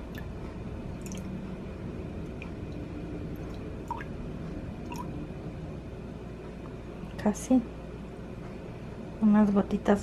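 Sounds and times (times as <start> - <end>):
low hum: 0.0 - 10.0
liquid dripping into a glass cup: 1.0 - 1.3.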